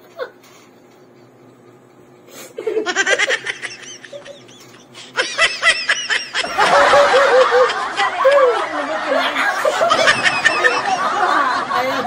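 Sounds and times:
man laughing uncontrollably: 2.6s - 12.0s
woman laughing: 2.6s - 12.0s.

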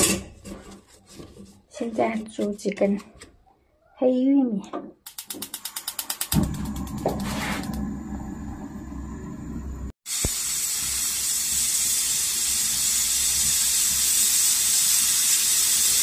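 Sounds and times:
gas burner rumbling: 5.1s - 16.0s
steam hissing from valve: 5.1s - 16.0s.

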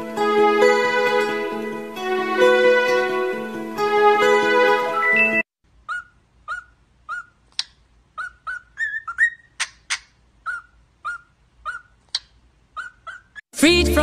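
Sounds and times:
cockatiels chirping: 5.2s - 13.4s.

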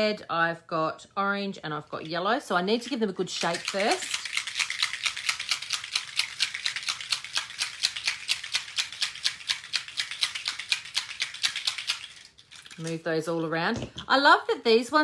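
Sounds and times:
small bottles rattling: 2.8s - 14.0s.

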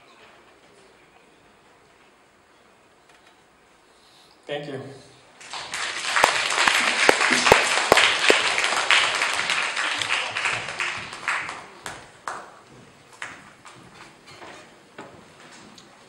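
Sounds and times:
audience applauding: 5.4s - 12.6s.

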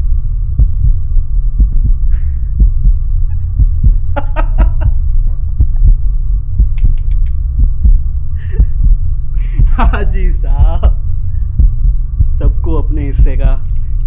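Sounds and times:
deep pulsing throb: 0.0s - 14.0s
steady hum: 0.0s - 14.0s
man laughing: 3.3s - 5.8s, 9.4s - 11.0s
sharp clicks: 6.6s - 7.4s.

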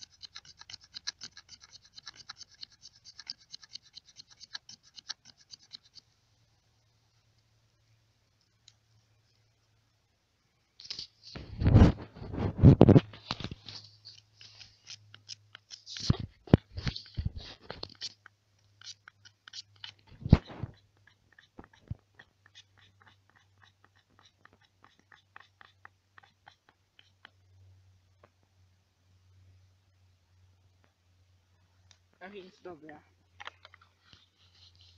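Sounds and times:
knife scraping wood: 0.0s - 6.0s, 10.8s - 27.3s, 33.9s - 34.9s.

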